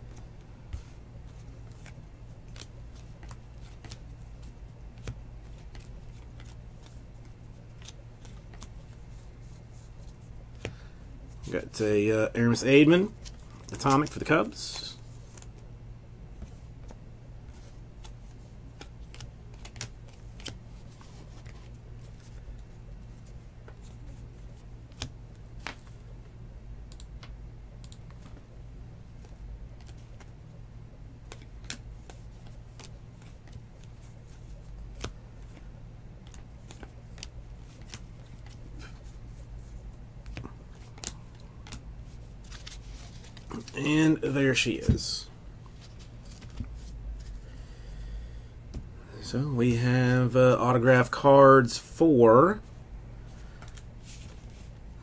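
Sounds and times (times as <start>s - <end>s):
cards clicking and sliding: 0.1s - 7.0s, 16.8s - 21.7s, 36.2s - 39.1s, 40.2s - 41.8s, 42.4s - 43.8s.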